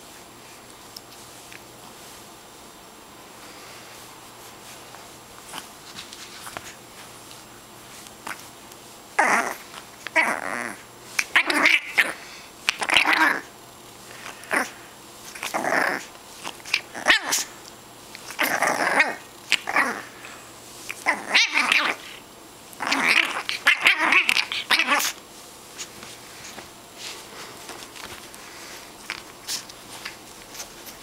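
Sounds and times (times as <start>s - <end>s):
puppy growling: 9.2s - 13.5s, 14.1s - 17.6s, 18.2s - 25.2s.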